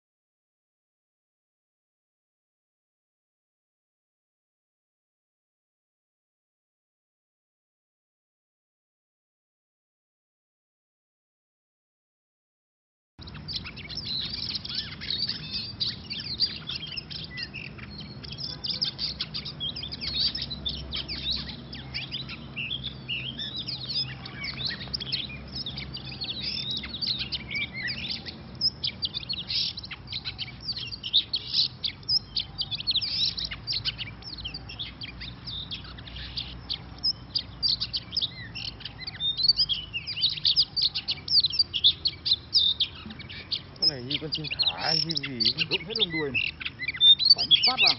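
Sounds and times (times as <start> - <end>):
birds chirping and chattering: 13.2 - 47.9.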